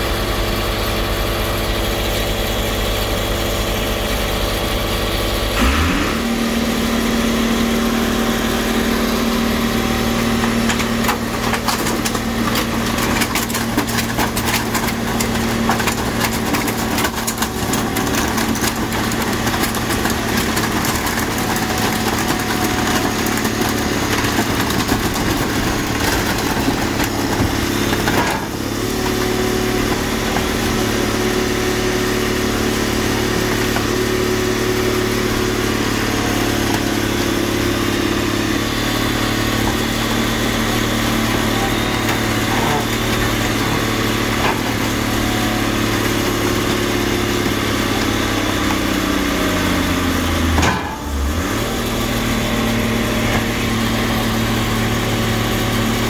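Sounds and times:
car crusher engine running: 0.0 - 56.0
car bodies crunching: 10.4 - 28.7.

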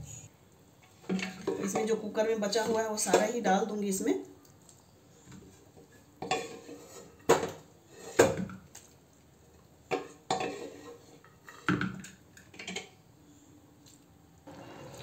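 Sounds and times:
spoon scraping inside pot: 10.3 - 11.7.

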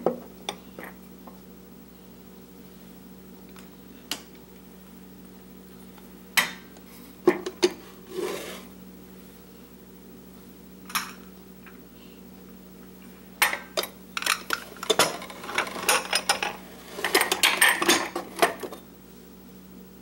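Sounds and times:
glass-on-glass scrape: 8.1 - 8.7
glass bowls clinking: 14.8 - 18.7.

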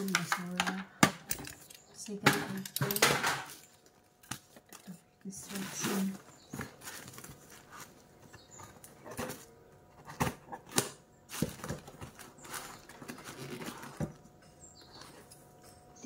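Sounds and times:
cardboard box rustling: 5.5 - 10.6, 11.3 - 14.2.

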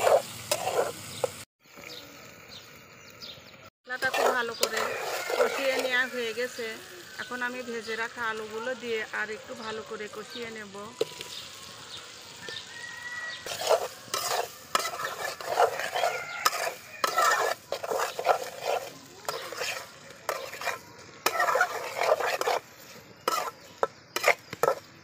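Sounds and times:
metal spatula scraping pan: 0.0 - 1.4, 3.9 - 6.7, 13.3 - 25.0
food sizzling in pan: 0.0 - 25.0.

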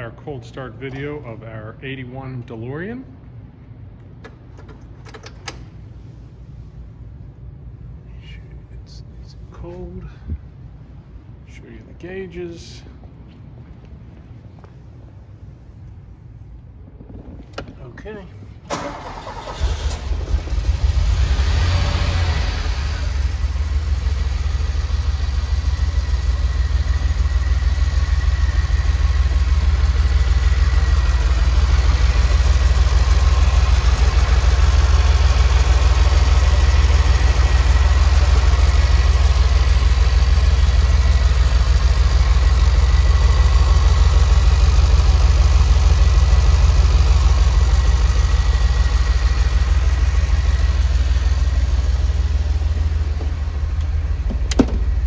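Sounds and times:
car engine idling: 16.2 - 55.0.

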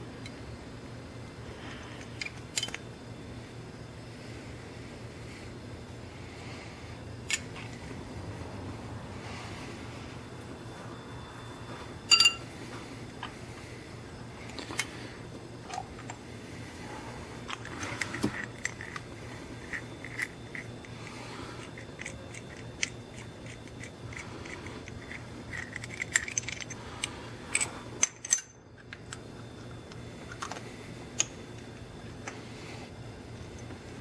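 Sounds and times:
steady low hum: 0.0 - 34.0
metallic clinks of tools handled: 2.0 - 2.8, 12.1 - 12.5, 22.0 - 29.2.

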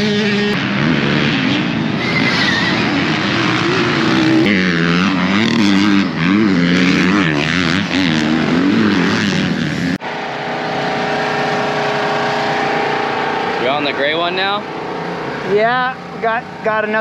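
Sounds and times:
dirt bike engine revving: 0.0 - 17.0
steady hum: 9.9 - 17.0.

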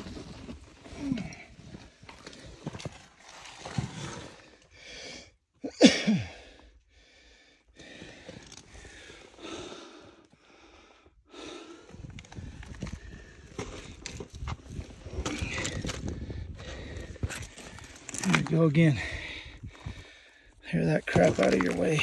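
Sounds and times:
man breathing hard: 4.3 - 5.5, 6.2 - 14.0, 14.8 - 18.0, 18.9 - 20.6.

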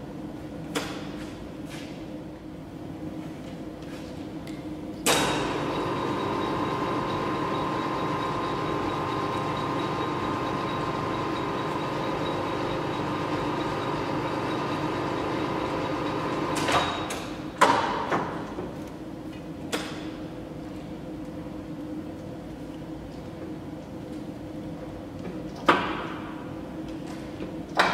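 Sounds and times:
lathe spindle humming: 5.5 - 16.6.

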